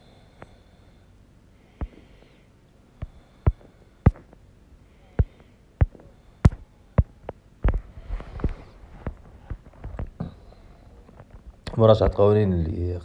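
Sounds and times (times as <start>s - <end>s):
stylus tapping on glass screen: 3.0s - 4.4s, 5.2s - 7.8s.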